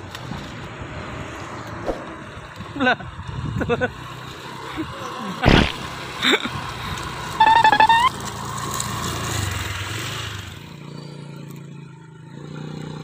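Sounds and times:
low engine hum: 0:00.0 - 0:13.0
scooter engine revving: 0:02.0 - 0:13.0.

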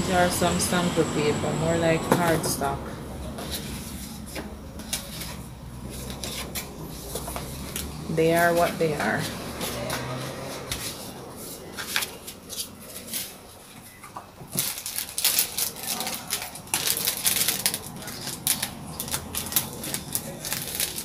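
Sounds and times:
plastic packaging crinkling: 0:11.8 - 0:21.0.

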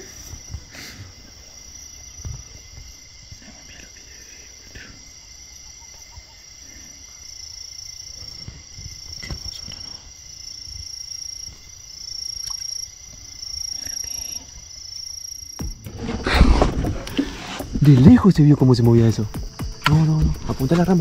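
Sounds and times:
insects trilling: 0:00.0 - 0:21.0.

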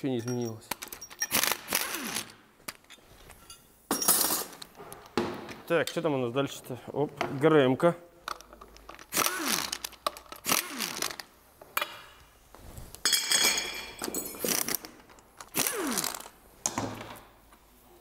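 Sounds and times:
impact wrench bursts: 0:00.9 - 0:02.4, 0:09.0 - 0:11.3, 0:14.4 - 0:14.8, 0:15.5 - 0:16.4.

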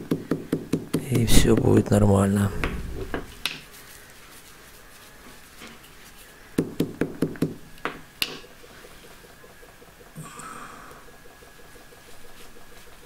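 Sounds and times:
small hammer knocking: 0:00.0 - 0:01.8, 0:06.6 - 0:08.5.

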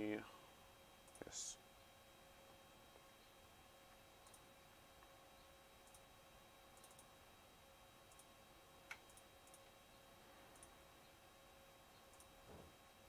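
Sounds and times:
faint steady hum: 0:00.0 - 0:13.0
computer mouse clicks: 0:04.2 - 0:04.5, 0:05.8 - 0:06.1, 0:06.7 - 0:07.1, 0:08.1 - 0:08.3, 0:08.9 - 0:09.7, 0:10.5 - 0:10.8, 0:12.1 - 0:12.4.

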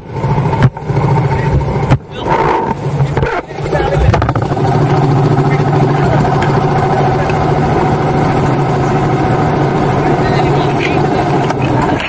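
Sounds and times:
vehicle engine running at low revs: 0:00.0 - 0:12.0.

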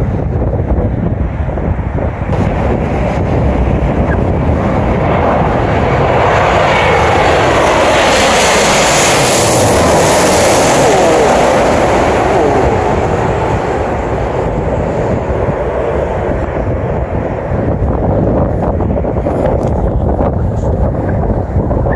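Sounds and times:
jet airliner passing overhead: 0:00.0 - 0:21.9
falling jet whine: 0:02.3 - 0:19.8.

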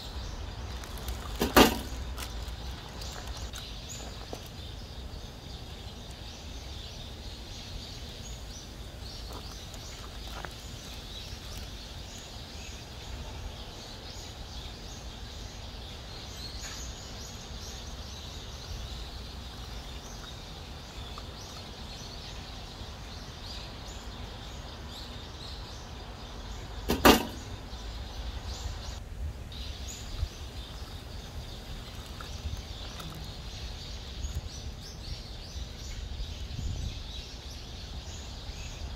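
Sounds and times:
sharp loud knock: 0:01.4 - 0:02.0, 0:26.9 - 0:27.4.

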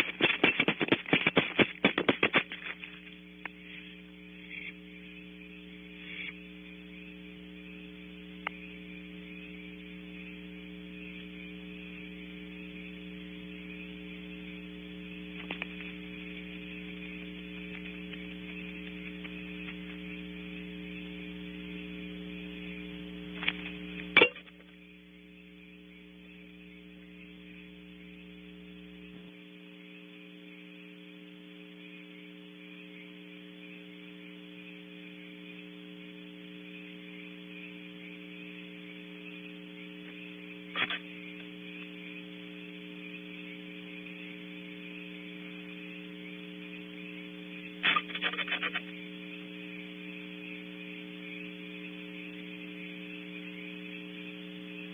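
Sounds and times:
low electrical hum: 0:00.0 - 0:54.9
faint clicks: 0:08.4 - 0:08.7, 0:15.3 - 0:20.2.

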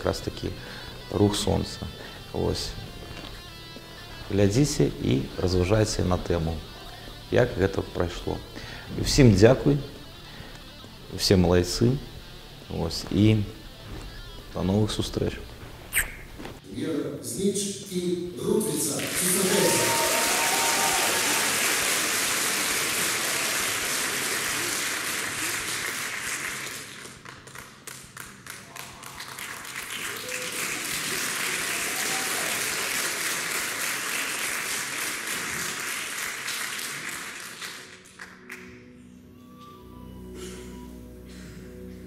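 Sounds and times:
audience applauding: 0:18.8 - 0:38.8.

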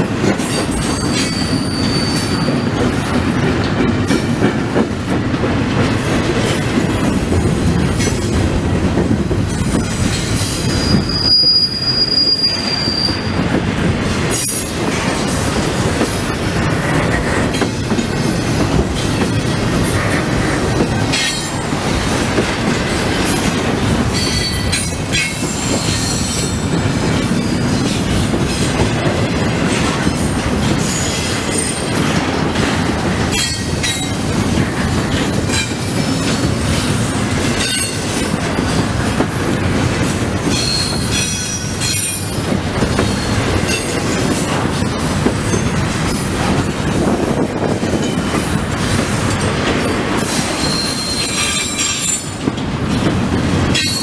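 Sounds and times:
rumble of train wheels on rail: 0:00.0 - 0:54.0
high-pitched wheel squeals: 0:01.1 - 0:02.7, 0:10.7 - 0:13.4, 0:50.6 - 0:52.2.

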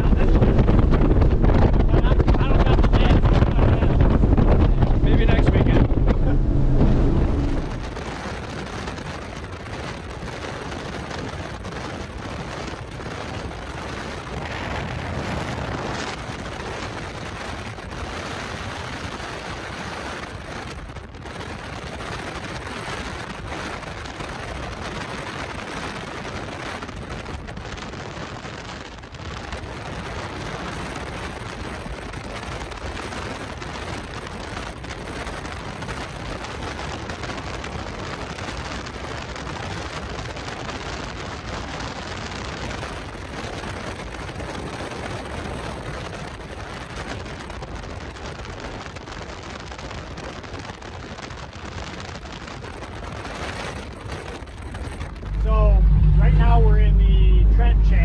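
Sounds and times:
wind rushing: 0:00.0 - 0:08.8, 0:55.0 - 0:58.0
water rushing: 0:03.6 - 0:08.2.

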